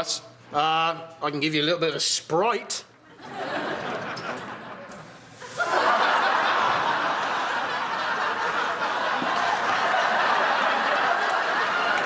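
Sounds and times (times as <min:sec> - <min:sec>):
studio audience laughing: 0:03.1 - 0:12.0.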